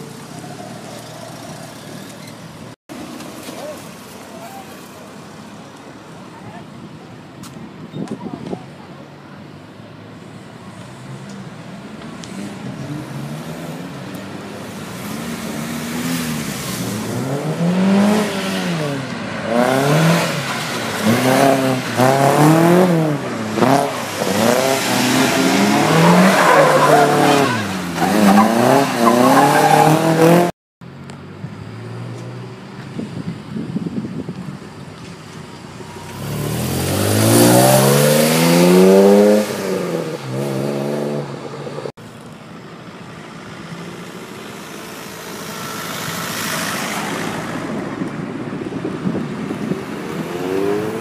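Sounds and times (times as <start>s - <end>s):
car engine revving: 14.9s - 30.5s, 36.0s - 41.9s.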